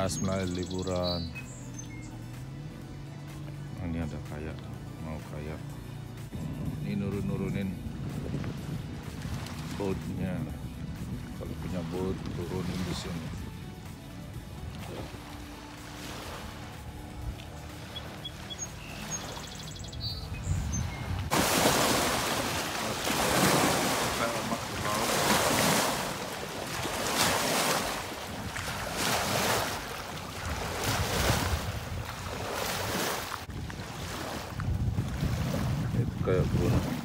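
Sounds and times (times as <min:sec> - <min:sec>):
waves washing onto concrete ramp: 0:21.3 - 0:31.8.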